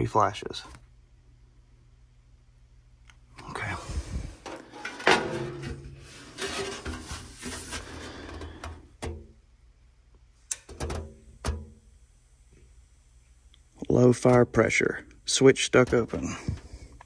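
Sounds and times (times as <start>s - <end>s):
sheet metal scraping and clattering: 4.4s - 9.2s.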